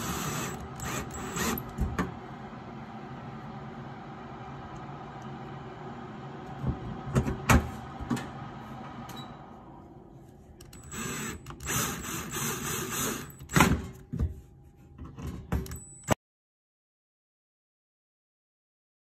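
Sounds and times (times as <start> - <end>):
cordless drill whirring: 0.0 - 1.8, 10.8 - 13.7
drill bit clicking on screws: 10.6 - 13.6.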